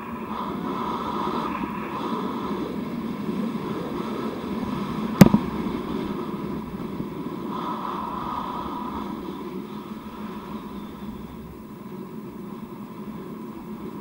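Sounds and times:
sharp knock: 0:05.2 - 0:05.7.

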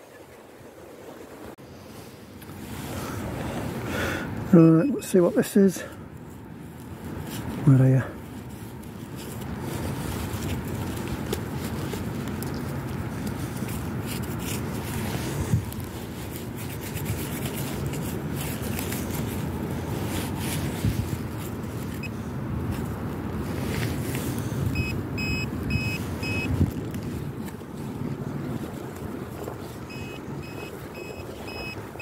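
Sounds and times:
hands scraping through earth: 0:06.7 - 0:24.8
pinpointer high beeps: 0:24.8 - 0:26.5, 0:29.9 - 0:31.8.

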